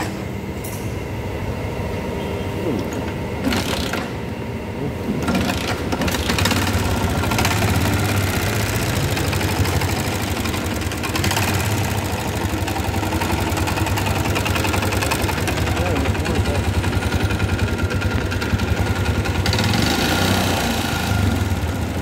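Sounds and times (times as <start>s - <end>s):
motorcycle engine idling with rattle: 5.1s - 22.0s.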